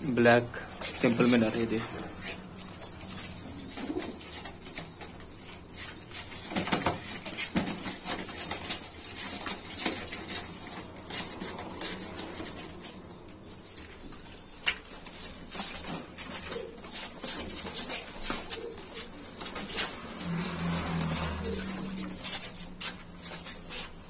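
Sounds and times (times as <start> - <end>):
pigeon wings flapping: 3.2 - 12.9, 14.6 - 24.0.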